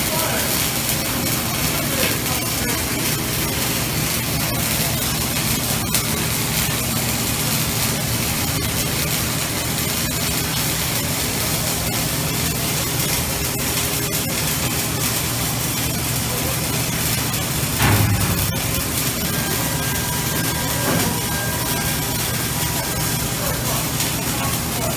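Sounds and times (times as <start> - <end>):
arc welding hiss and crackles: 0.0 - 24.9
low machinery hum: 11.2 - 24.9.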